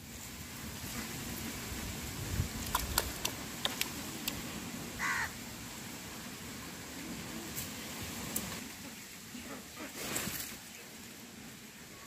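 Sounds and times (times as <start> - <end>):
duck bill clicking in mud: 2.6 - 4.4.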